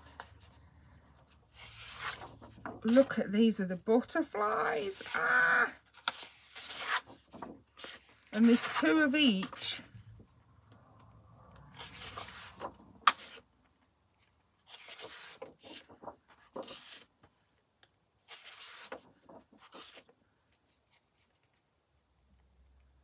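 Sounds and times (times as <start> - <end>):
card sheets rustling and sliding: 0.0 - 10.0, 11.7 - 13.5, 14.2 - 17.4, 18.2 - 21.3.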